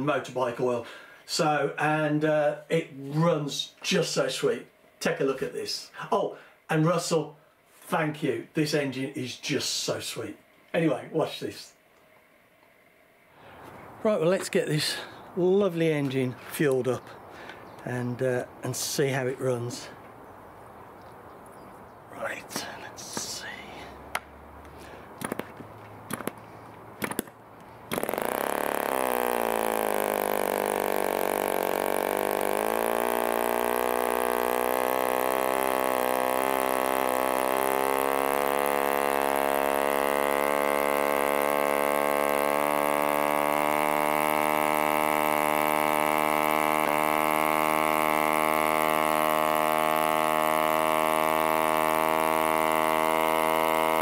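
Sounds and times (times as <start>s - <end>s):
propeller flicking clicks: 22.2s - 54.0s
model aero engine running: 26.1s - 54.0s.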